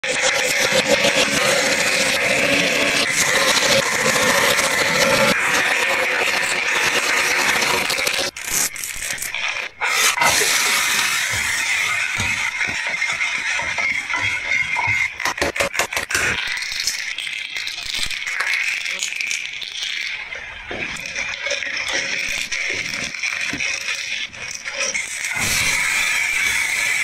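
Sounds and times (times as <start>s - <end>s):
food cooking in frying pan: 0.0s - 27.0s
egg shell cracking and peeling: 2.8s - 20.2s.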